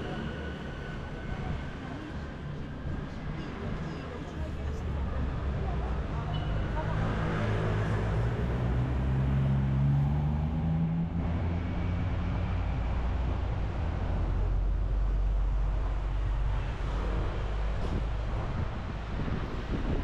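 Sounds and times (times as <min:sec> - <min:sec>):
low traffic rumble: 0:00.0 - 0:20.0.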